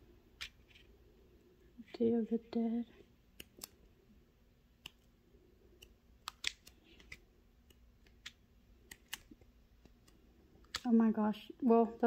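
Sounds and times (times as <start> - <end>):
stiff pages turning: 5.8 - 7.2, 8.0 - 10.8.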